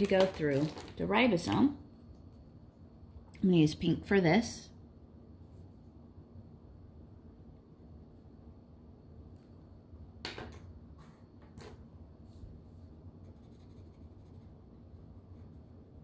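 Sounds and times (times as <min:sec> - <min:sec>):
marker scratching on paper: 0:13.2 - 0:15.6.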